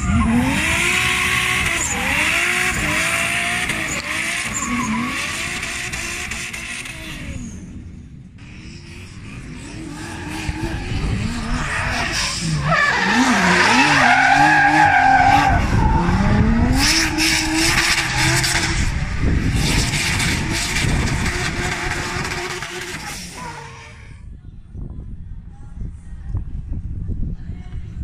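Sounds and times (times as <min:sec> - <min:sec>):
car engine revving hard: 0:00.0 - 0:07.4, 0:09.7 - 0:23.7.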